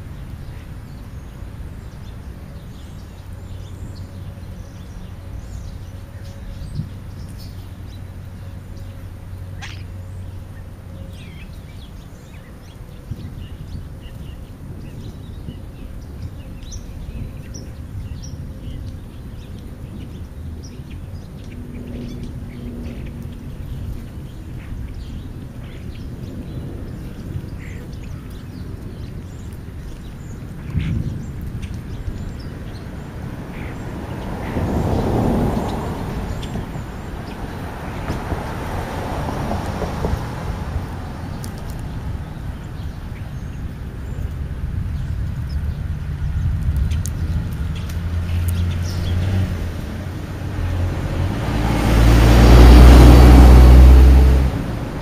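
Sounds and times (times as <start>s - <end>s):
short bird calls and chirps: 9.6s - 10.0s.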